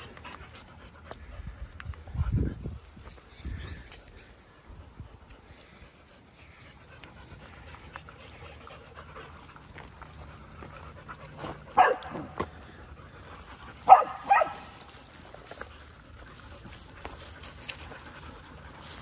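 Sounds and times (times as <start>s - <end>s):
dog barking: 11.8s - 12.4s, 13.8s - 14.7s.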